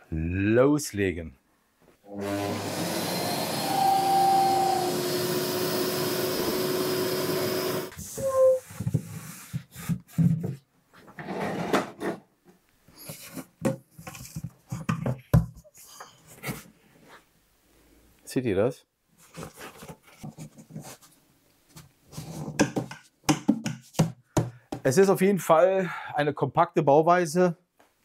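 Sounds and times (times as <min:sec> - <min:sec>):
dust extractor rushing and whistling: 0:02.2 - 0:07.9.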